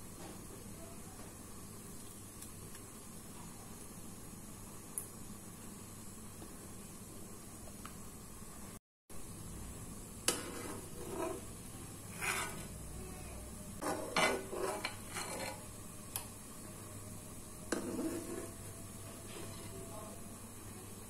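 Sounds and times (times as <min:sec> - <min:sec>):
metal ladle scraping a pan: 0:10.3 - 0:12.9, 0:13.8 - 0:15.7, 0:17.7 - 0:18.7.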